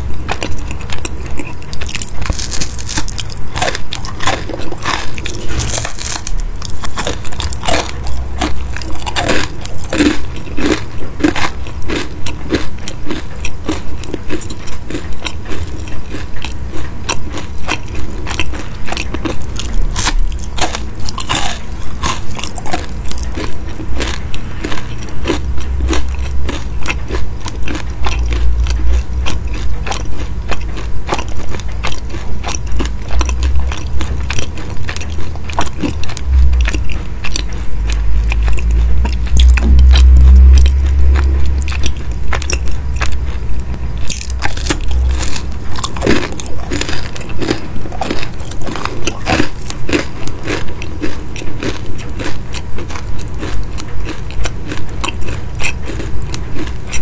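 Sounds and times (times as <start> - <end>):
chewing crisp pastry: 0.0 - 57.0.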